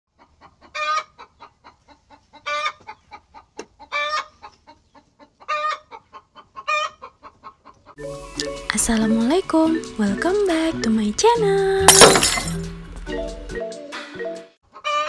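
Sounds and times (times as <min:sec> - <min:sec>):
chicken clucking softly: 0:00.1 - 0:08.0
chicken loud high calls: 0:03.8 - 0:04.4, 0:14.7 - 0:15.0.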